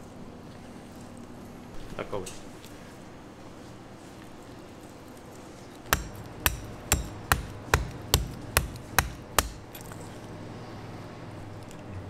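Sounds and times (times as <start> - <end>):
knife chopping on wooden board: 5.9 - 9.7.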